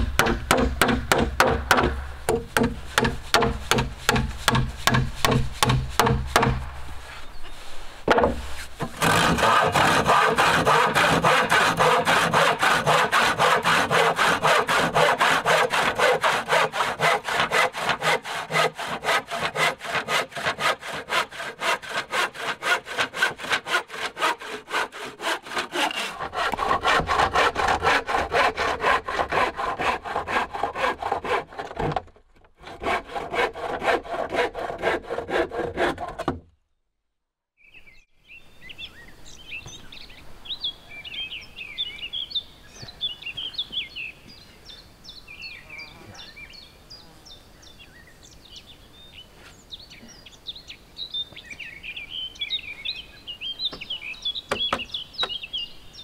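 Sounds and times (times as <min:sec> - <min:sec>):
hand saw cutting wood: 0:00.0 - 0:07.2, 0:08.2 - 0:36.5.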